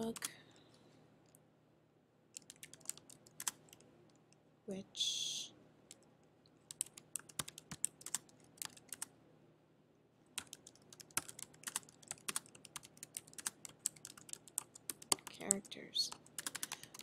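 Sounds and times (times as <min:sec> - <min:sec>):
computer keyboard typing: 0:00.0 - 0:00.4, 0:02.4 - 0:03.8, 0:06.7 - 0:09.1, 0:10.4 - 0:17.0.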